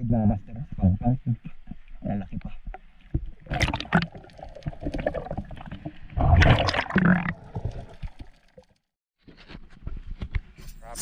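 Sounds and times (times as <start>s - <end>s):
water gurgling and rushing: 3.2s - 8.8s.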